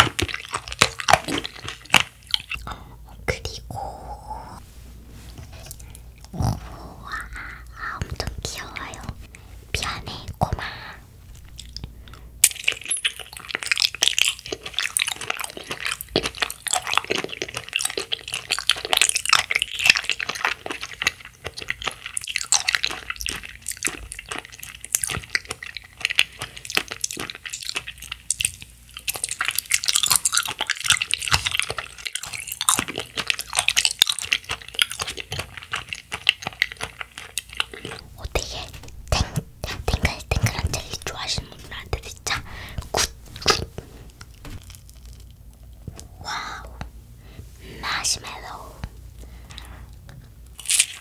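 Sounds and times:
biting gummy candy: 0:00.0 - 0:02.7, 0:11.4 - 0:46.7, 0:49.6 - 0:51.0
wet chewing mouth clicks: 0:00.0 - 0:02.7, 0:11.4 - 0:46.9.

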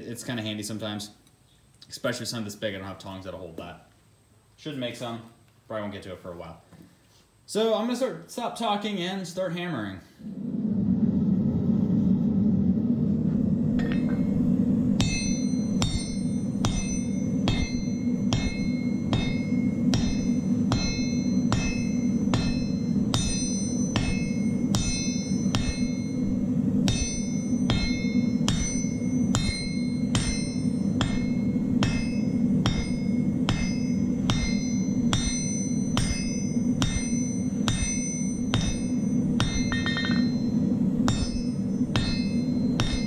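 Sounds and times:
forge roaring: 0:10.2 - 0:43.0
hammer blows ringing on anvil: 0:15.0 - 0:43.0.

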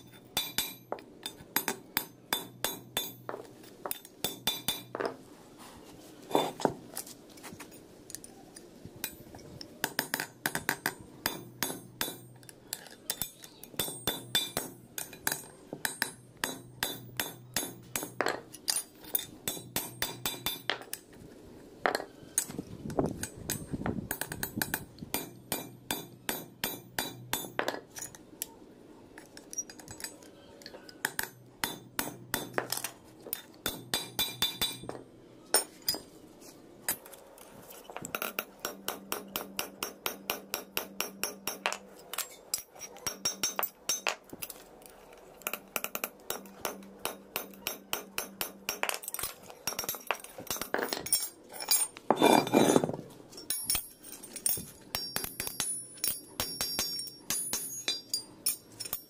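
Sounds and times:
hammer ringing on steel: 0:54.9 - 0:59.0.

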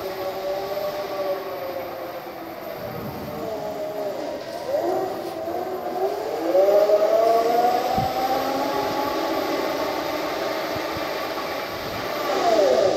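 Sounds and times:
electric motor whining: 0:02.7 - 0:05.0.

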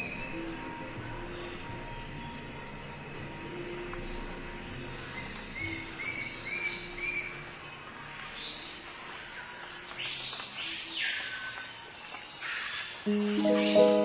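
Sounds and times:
insect-like sounds: 0:00.0 - 0:14.0
bird chirps: 0:13.1 - 0:14.0
sustained music chords: 0:13.1 - 0:14.0.

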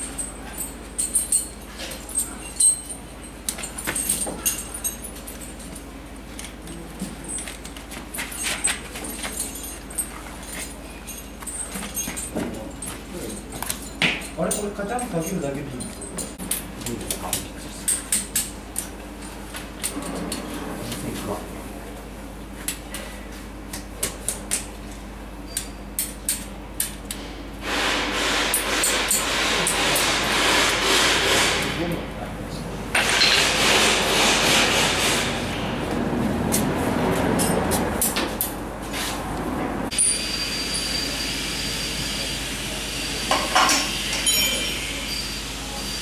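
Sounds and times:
tire chain clinking and rattling: 0:00.0 - 0:16.7.

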